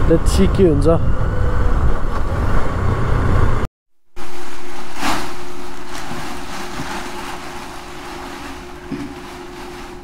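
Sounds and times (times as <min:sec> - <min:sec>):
motorcycle engine and wind rumble: 0:00.0 - 0:03.6
faint constant hum: 0:04.2 - 0:10.0.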